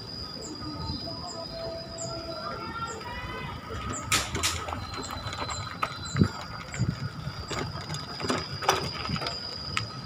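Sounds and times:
bike tyres rumbling on gravel: 2.6 - 10.0
bike clicks and rattles: 3.7 - 10.0.

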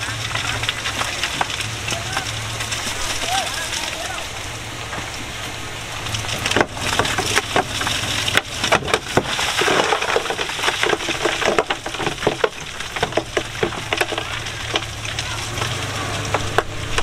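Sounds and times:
stone crunching under bulldozer blade: 0.0 - 4.3, 4.9 - 17.0
diesel engine hum: 0.0 - 17.0.

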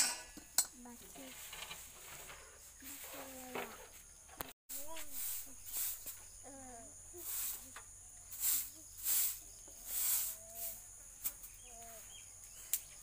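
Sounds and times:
broom sweeping earth floor: 0.8 - 13.0
crickets trilling: 3.4 - 13.0
faint voice: 6.4 - 7.8.

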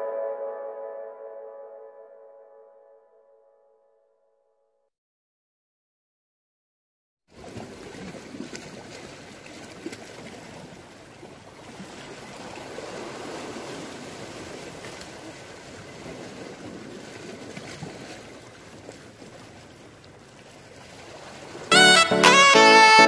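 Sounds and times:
surf washing against rocks: 7.4 - 19.6, 20.6 - 21.7.

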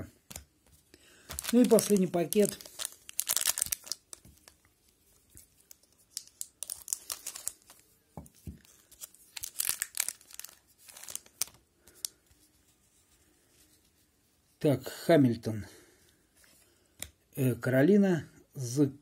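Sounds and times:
wrapper tearing and crinkling: 1.2 - 4.7, 5.4 - 7.9, 8.5 - 12.1.

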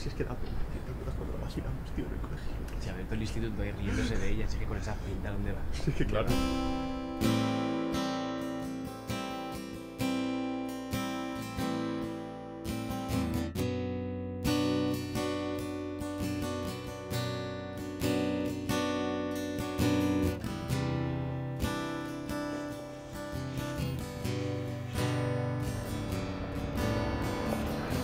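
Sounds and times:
acoustic guitar strumming chords: 6.3 - 28.0.

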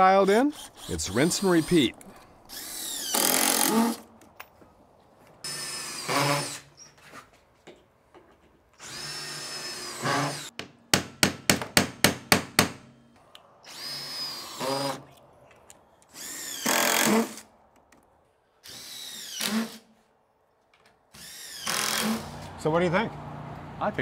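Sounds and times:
power drill driving screws: 2.5 - 4.1, 5.4 - 6.9, 8.8 - 10.5, 13.6 - 15.1, 16.1 - 17.5, 18.6 - 19.9, 21.1 - 22.5.

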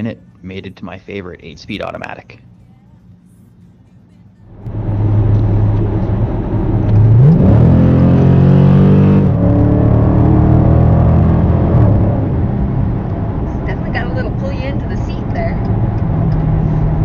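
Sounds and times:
car engine accelerating: 4.4 - 17.0.

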